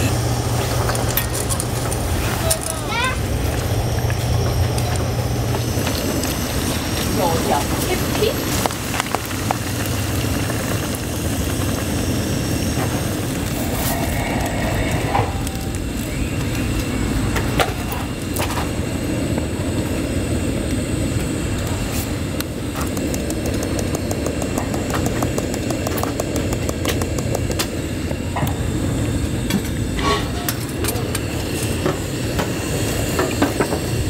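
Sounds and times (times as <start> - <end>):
gas stove burner rushing: 0.0 - 34.0
cooking clicks and taps: 22.3 - 28.6.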